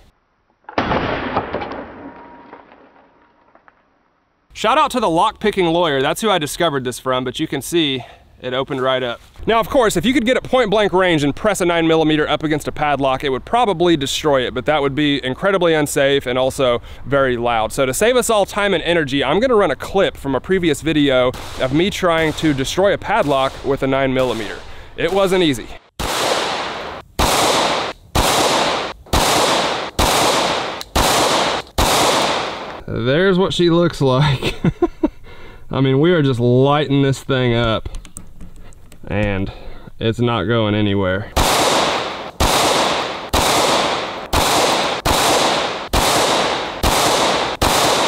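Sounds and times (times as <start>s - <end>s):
handgun shots with echo: 0.7s - 2.4s, 41.4s - 48.0s
handgun shots: 26.0s - 32.8s, 41.4s - 48.0s.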